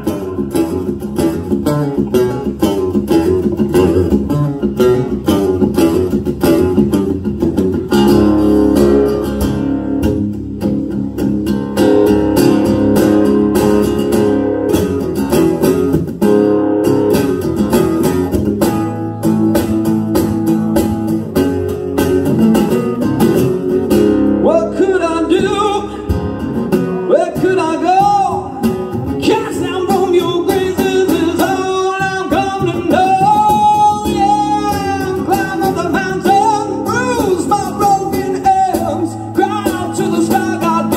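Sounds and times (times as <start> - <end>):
guitar picking sustained notes: 0.0 - 40.9
person singing: 24.4 - 40.9.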